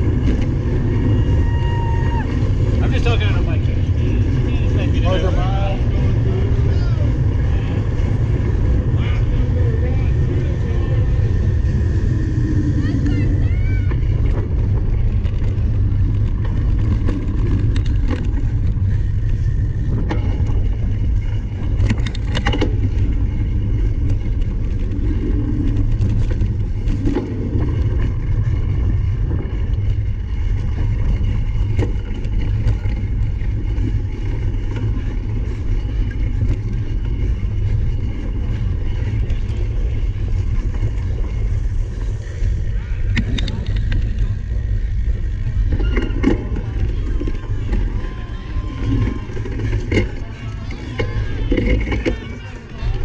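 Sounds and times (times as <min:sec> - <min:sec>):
wind rumbling on microphone: 0:00.0 - 0:53.0
bike clicks and knocks: 0:13.9 - 0:53.0.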